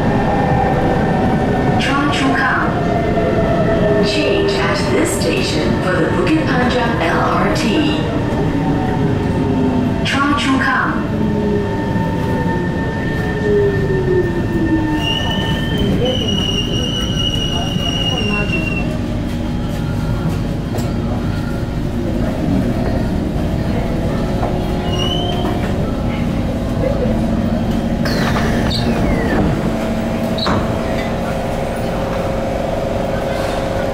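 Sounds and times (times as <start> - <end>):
train rumble with motor whine: 0.0 - 33.9
high wheel squeal: 14.8 - 18.9.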